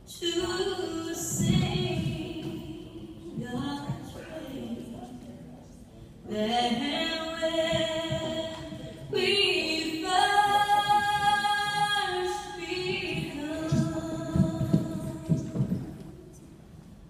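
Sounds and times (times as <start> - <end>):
dull low thumps: 12.8 - 16.0.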